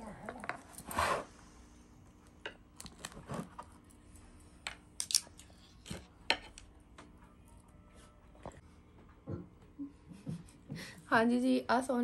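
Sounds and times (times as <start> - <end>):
brittle sweet cracking: 5.0 - 6.0.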